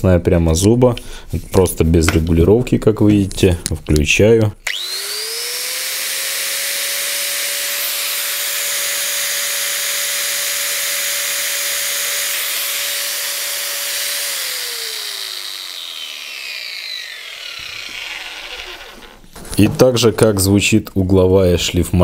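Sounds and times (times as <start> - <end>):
angle grinder whining: 4.6 - 19.4.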